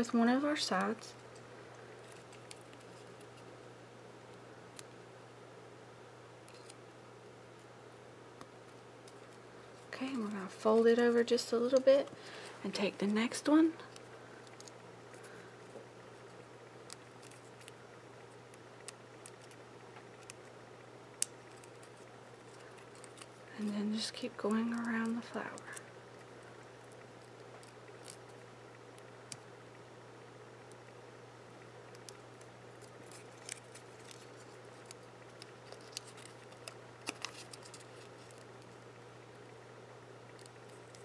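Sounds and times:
paper clicks and rustles: 2.0s - 3.5s, 16.9s - 17.8s, 18.5s - 20.6s, 21.2s - 23.4s, 31.9s - 38.8s.

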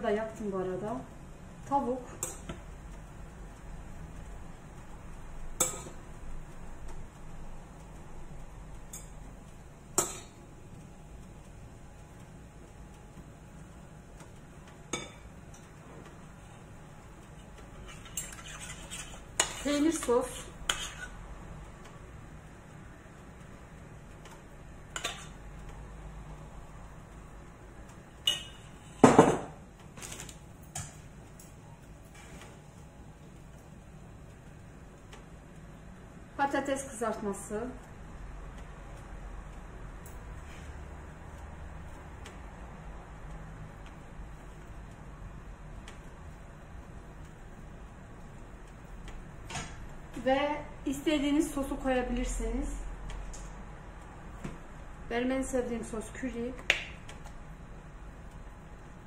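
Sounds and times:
metal spoon clinking on saucepan: 28.2s - 28.7s.

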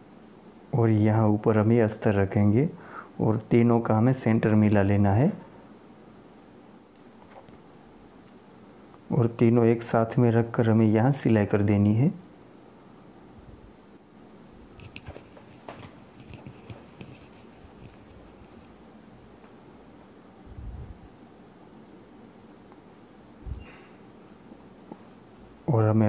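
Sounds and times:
thin high-pitched whine: 23.4s - 26.0s.

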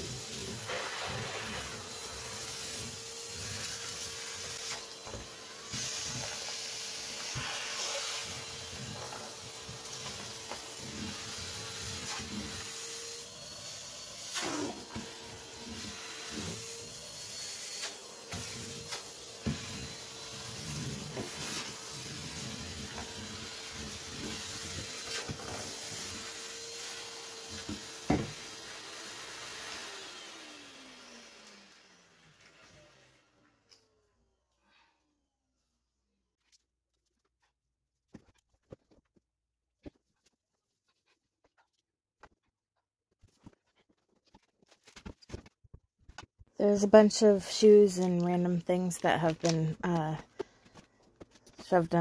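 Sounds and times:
vacuum cleaner running: 0.0s - 33.5s.

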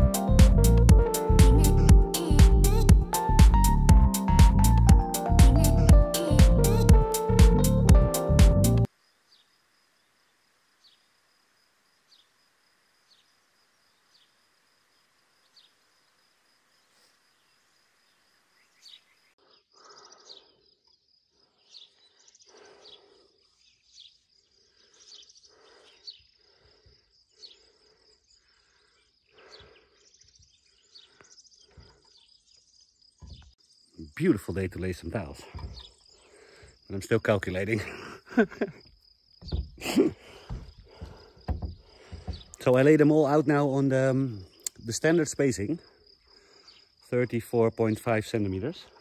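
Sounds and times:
high insect trill: 8.8s - 49.0s
light chirps: 13.0s - 43.6s
soft knocks and rustles: 33.2s - 33.6s, 35.5s - 35.9s, 39.4s - 42.7s.

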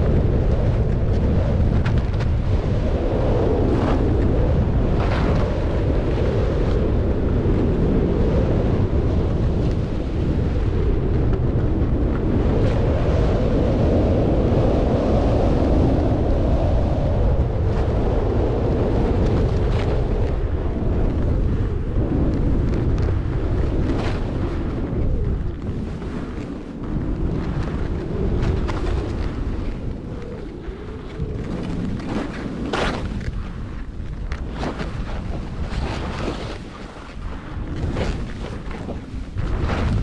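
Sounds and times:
wind buffeting microphone: 0.0s - 40.0s
skis sliding on snow: 25.6s - 40.0s.

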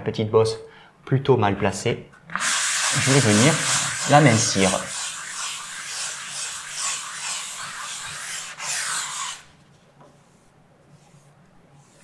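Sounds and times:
sanding block rasping on wall: 2.4s - 9.5s.

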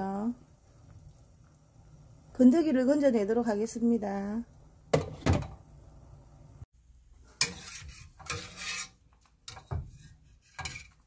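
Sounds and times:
metal ladle scraping in pot: 7.3s - 11.0s.

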